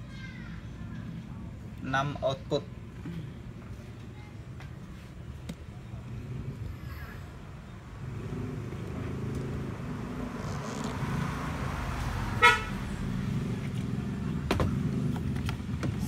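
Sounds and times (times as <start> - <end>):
vehicle engine running: 7.8 - 16.0
car horn toot: 12.4 - 12.8.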